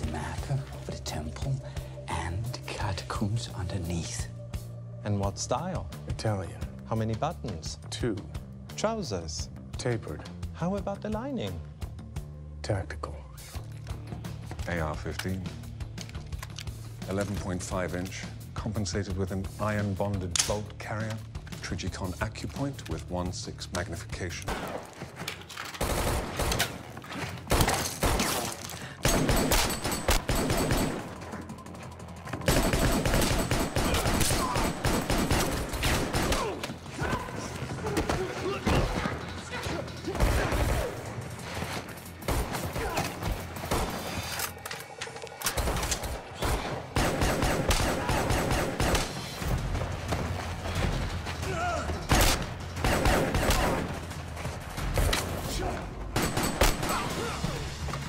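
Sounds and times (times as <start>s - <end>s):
rapid rifle gunfire echoing: 25.8s - 26.6s, 29.0s - 31.6s, 32.5s - 36.5s, 46.4s - 49.4s, 52.1s - 54.0s
gunshots: 25.8s - 31.5s, 32.4s - 37.2s, 38.0s - 41.3s, 42.2s - 44.3s, 45.5s - 50.8s, 51.4s - 57.8s.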